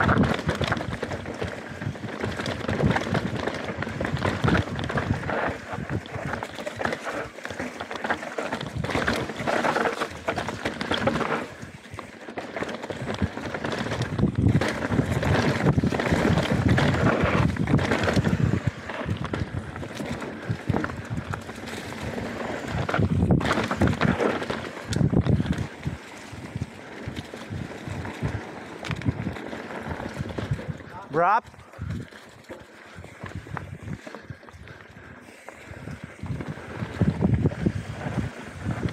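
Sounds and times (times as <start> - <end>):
wind rushing over microphone: 0.0 - 6.6, 12.9 - 32.2, 32.9 - 38.9
bike clattering and rattling: 0.0 - 38.9
bike tyres rolling over rough ground: 0.0 - 38.9.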